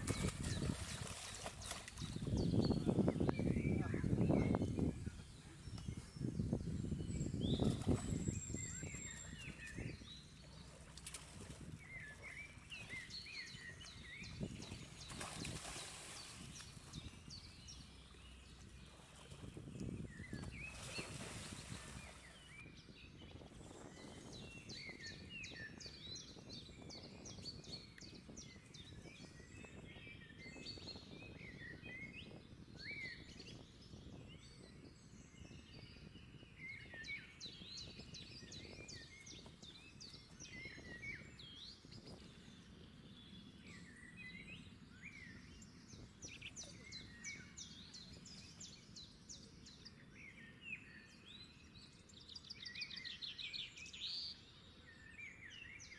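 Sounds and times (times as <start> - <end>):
water rushing from wading: 0.0 - 2.3, 14.6 - 16.9, 20.5 - 22.4
small birds chirping: 0.0 - 55.9
water splash: 15.0 - 16.8, 20.5 - 22.2.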